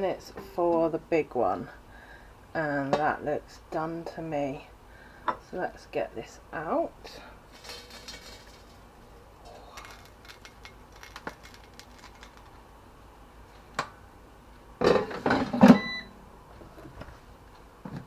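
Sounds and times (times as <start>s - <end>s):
air fryer basket clattering: 7.6s - 8.8s.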